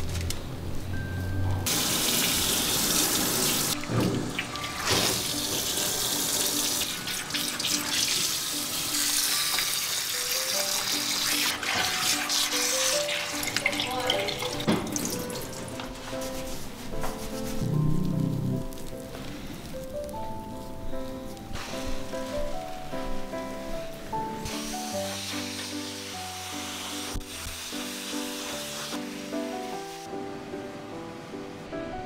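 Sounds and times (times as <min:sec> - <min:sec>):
shower water spraying and splashing: 0:01.7 - 0:16.6, 0:21.5 - 0:22.7, 0:24.4 - 0:30.1.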